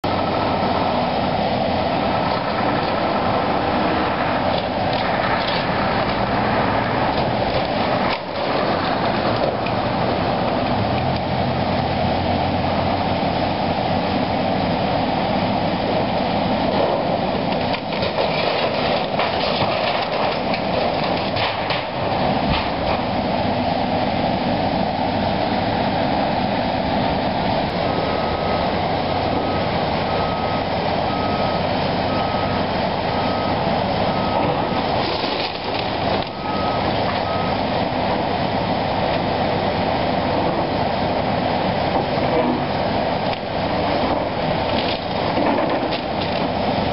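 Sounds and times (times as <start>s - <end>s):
excavator engine running: 0.0s - 46.9s
backup alarm beeping: 29.4s - 34.6s.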